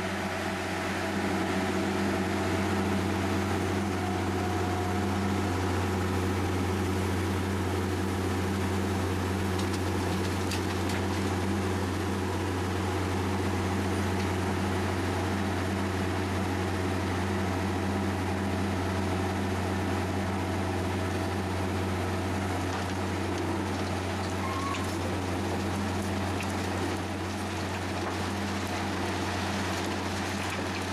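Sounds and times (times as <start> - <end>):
diesel engine humming: 0.0 - 30.9.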